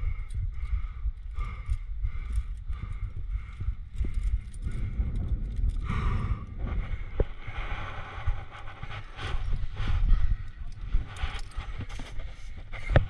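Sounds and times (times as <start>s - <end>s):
carabiners clinking: 0.0s - 5.9s, 10.3s - 13.0s
wind rumbling on microphone: 0.0s - 13.0s.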